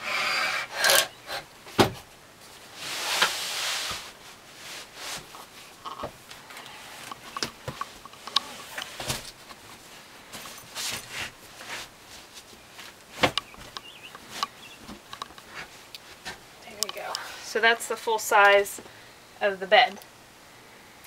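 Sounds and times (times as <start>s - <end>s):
wood and cushion sliding: 0.0s - 6.2s
wooden knocks and clunks: 1.7s - 2.1s, 13.2s - 16.4s
cushions rustling: 1.7s - 17.4s.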